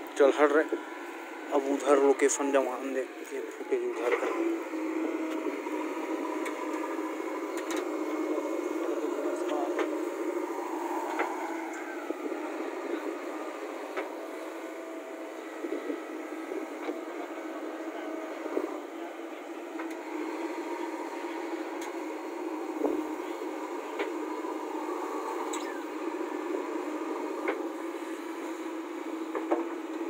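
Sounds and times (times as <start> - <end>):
diesel engine under load: 0.0 - 30.0.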